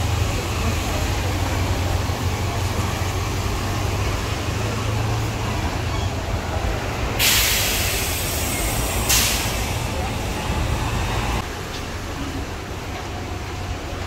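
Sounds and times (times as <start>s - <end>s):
bus engine rumble: 0.0s - 14.0s
traffic: 0.0s - 14.0s
bus air brakes hissing: 7.0s - 11.4s.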